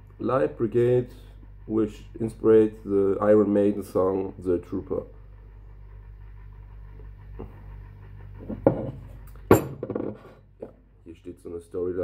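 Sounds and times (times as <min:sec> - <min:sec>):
steady low hum: 0:00.0 - 0:12.0
glass bottle tapping and knocking: 0:09.5 - 0:10.2.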